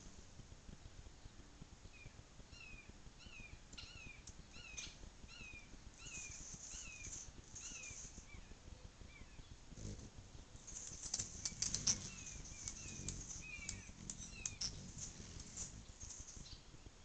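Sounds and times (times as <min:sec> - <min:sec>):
sharp clicks: 0:10.7 - 0:16.4.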